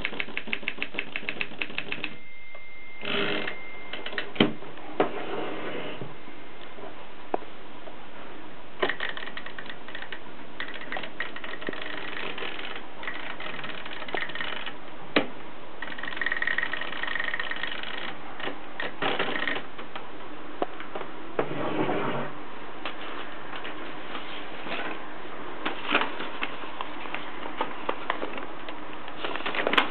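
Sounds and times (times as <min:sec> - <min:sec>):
typewriter clicks: 0:00.0 - 0:02.2
typewriter mechanism clattering: 0:00.0 - 0:02.2, 0:08.8 - 0:14.8, 0:15.8 - 0:19.6.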